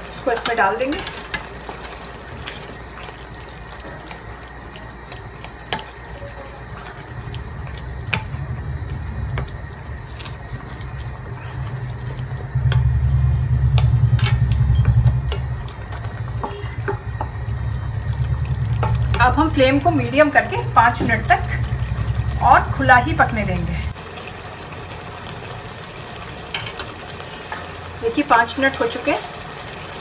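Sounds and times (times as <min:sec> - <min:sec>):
stew bubbling: 0:01.3 - 0:27.5
low rumble: 0:06.4 - 0:24.6.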